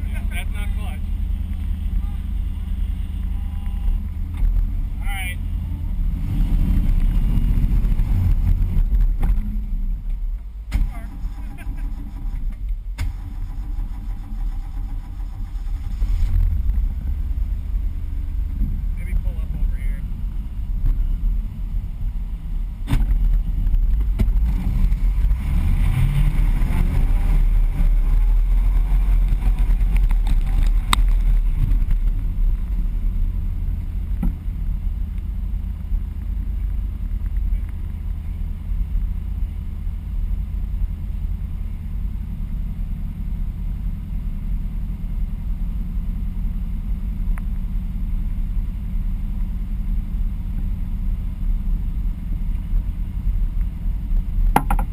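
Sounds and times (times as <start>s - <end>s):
car engine revving and idling: 0.0s - 54.9s
sharp knocks: 54.5s - 54.9s.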